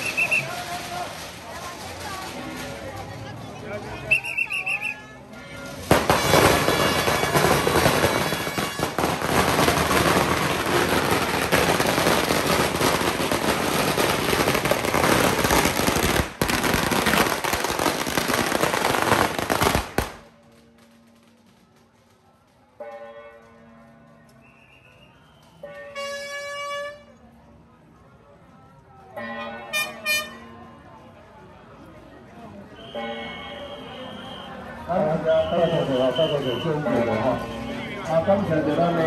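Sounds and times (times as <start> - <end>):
firecrackers crackling: 0.0 - 23.0.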